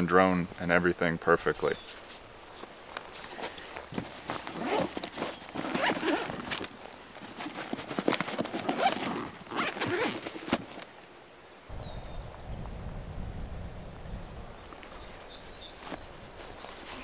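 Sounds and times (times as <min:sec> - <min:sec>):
zipper being pulled open: 0:03.3 - 0:10.8.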